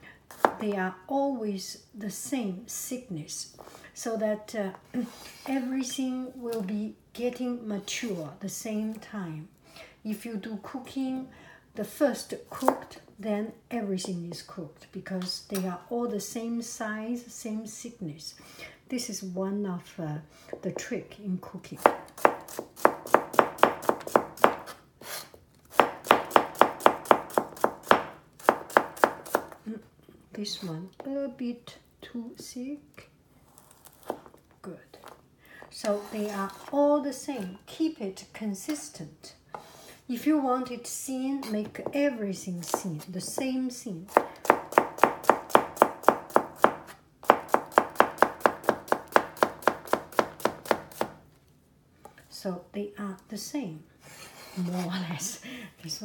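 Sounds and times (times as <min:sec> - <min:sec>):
knife chopping on plastic board: 0:00.3 - 0:00.6, 0:21.8 - 0:24.8, 0:25.7 - 0:29.6, 0:44.1 - 0:51.2.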